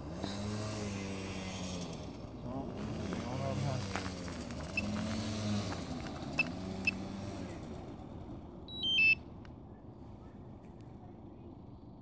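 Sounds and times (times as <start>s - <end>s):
remote controller beeps: 8.7s - 9.2s
stepped high beeps: 8.7s - 9.2s.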